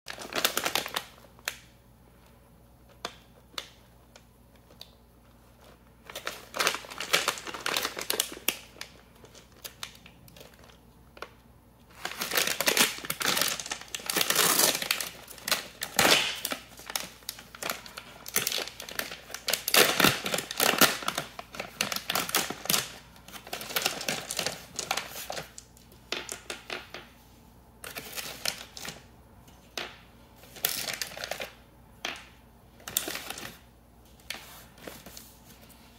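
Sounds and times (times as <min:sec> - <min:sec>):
plastic bag crinkling: 0:00.1 - 0:01.7, 0:02.9 - 0:27.2, 0:27.8 - 0:29.1, 0:29.7 - 0:35.6
plastic bag tearing open: 0:06.1 - 0:10.6, 0:11.9 - 0:25.6, 0:30.6 - 0:31.6.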